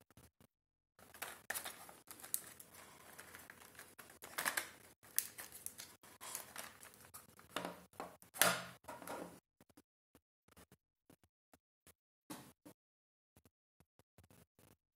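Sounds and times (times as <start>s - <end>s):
plastic links clicking and scraping: 1.0s - 9.2s.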